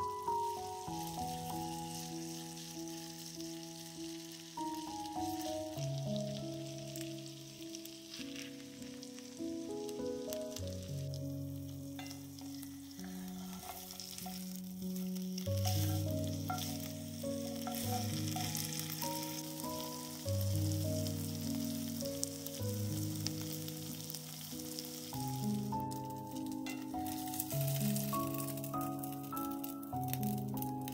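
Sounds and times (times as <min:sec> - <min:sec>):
background music with held notes: 0:00.0 - 0:30.9
chicken sizzling in oil: 0:00.0 - 0:30.9.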